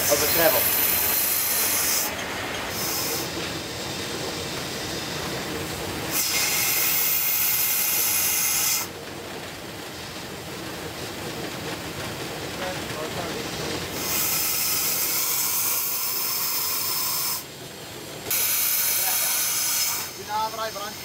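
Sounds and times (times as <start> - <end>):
steam hissing burst: 0.0 - 8.9, 18.2 - 21.0
steady rumbling hiss: 0.0 - 21.0.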